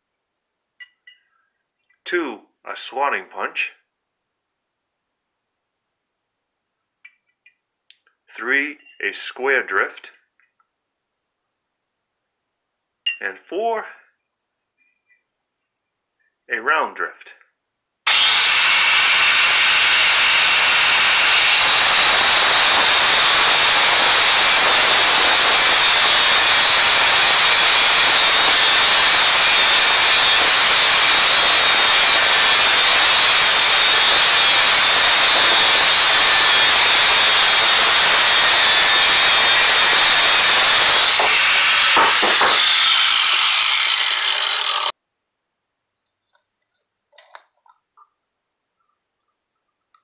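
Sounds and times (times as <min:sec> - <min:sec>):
angle grinder cutting steel: 0:18.1 - 0:44.9
grinder wheel spinning down: 0:18.1 - 0:44.9.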